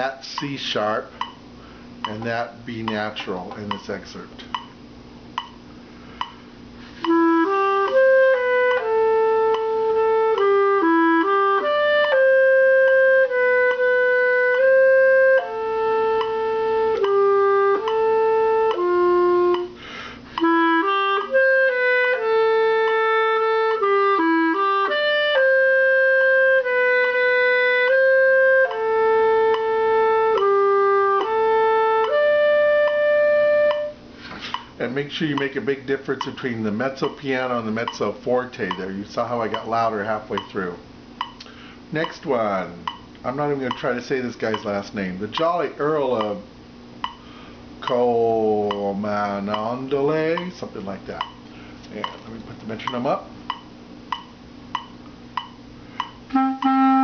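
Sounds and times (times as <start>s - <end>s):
solo clarinet melody: 7.0s - 34.0s, 56.3s - 57.0s.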